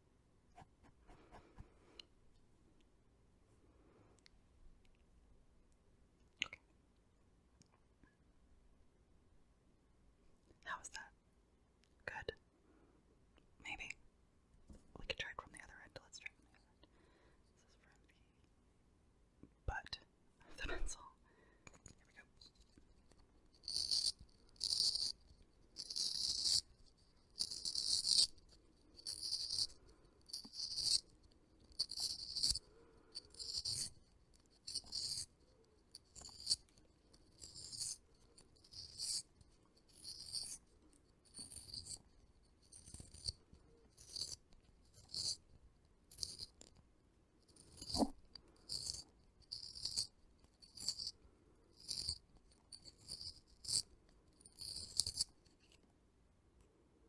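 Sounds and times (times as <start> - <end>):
pencil sharpener shaving wood: 25.8 - 26.7, 27.3 - 29.7, 33.2 - 35.3.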